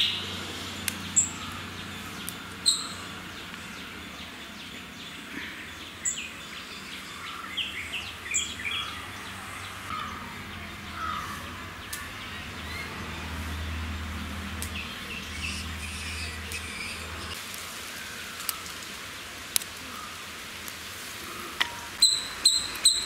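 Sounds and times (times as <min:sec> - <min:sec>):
low background hum: 0:00.0 - 0:17.4
birds chirping: 0:00.0 - 0:20.3, 0:21.2 - 0:23.0
sharp high bird calls: 0:01.0 - 0:03.4, 0:14.7 - 0:17.4, 0:21.7 - 0:23.0.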